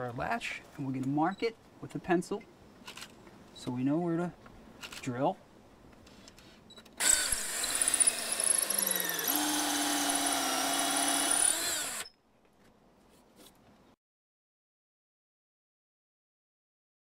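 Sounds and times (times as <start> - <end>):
power drill boring into wood: 7.0 - 12.1.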